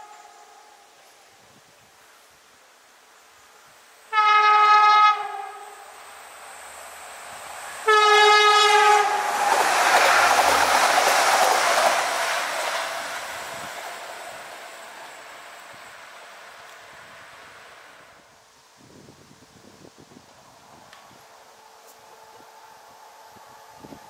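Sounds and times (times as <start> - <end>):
train passing with rushing rumble: 0.0 - 24.0
train horn blasts: 4.1 - 6.0, 7.8 - 9.3.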